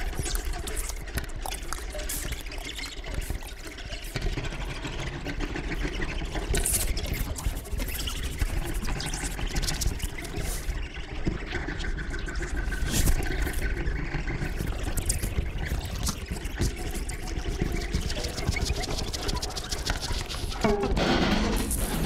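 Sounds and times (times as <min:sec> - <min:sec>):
crackling hissing noise texture: 0:00.0 - 0:04.2, 0:06.4 - 0:20.6
scattered clicks: 0:00.0 - 0:05.6.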